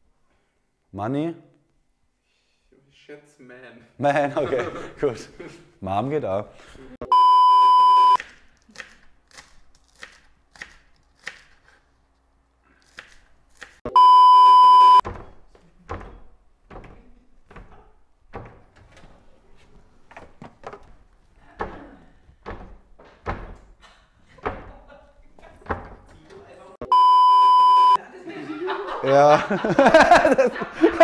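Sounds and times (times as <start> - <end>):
censor bleep tone: 7.0 - 8.2, 13.9 - 15.0, 26.8 - 28.0.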